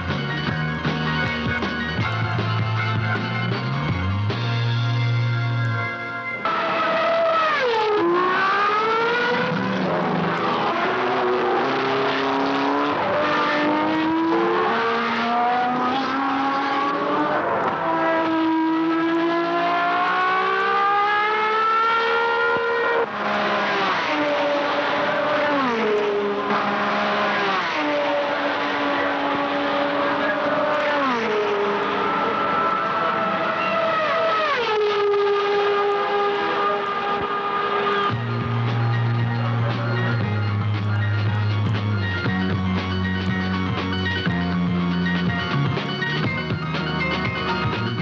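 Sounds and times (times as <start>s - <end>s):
racing car engine accelerating: 0.0s - 48.0s
racing cars passing by: 6.4s - 42.9s.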